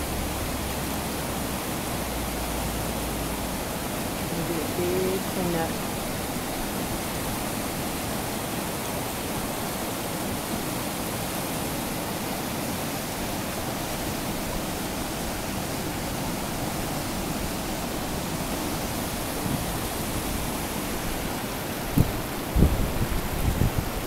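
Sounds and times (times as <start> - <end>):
floodwater rushing over dam: 0.0 - 24.0.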